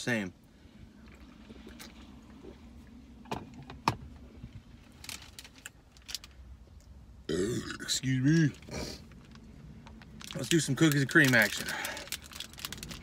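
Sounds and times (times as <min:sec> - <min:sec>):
steady low hum: 0:00.0 - 0:13.0
packaging crinkling: 0:04.9 - 0:06.4, 0:08.6 - 0:13.0.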